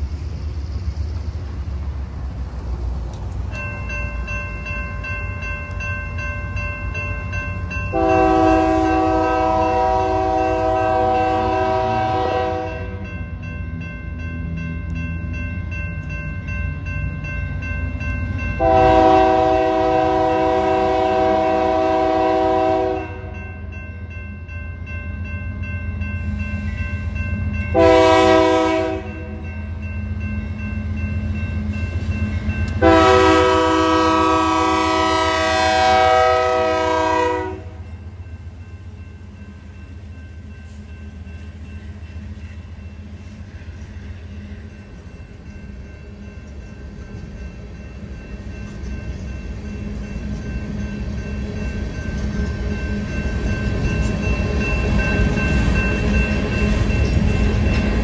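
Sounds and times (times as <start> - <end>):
crossing warning bell ringing: 3.2 - 58.0
locomotive air horn blasts: 7.9 - 13.0, 18.6 - 23.4, 27.7 - 29.4, 32.8 - 37.8.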